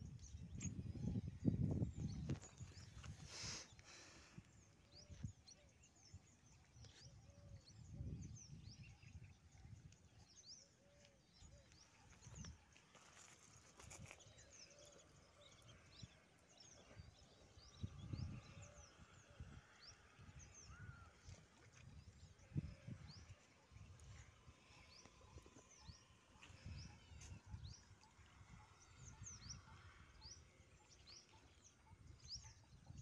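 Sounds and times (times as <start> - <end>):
wind rumbling on microphone: 0.0 - 10.4, 15.2 - 30.7.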